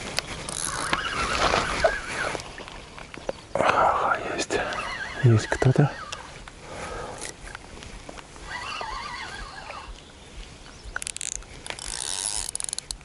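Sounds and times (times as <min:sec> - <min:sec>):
fishing reel whirring and clicking: 0:00.5 - 0:01.0, 0:11.0 - 0:13.0.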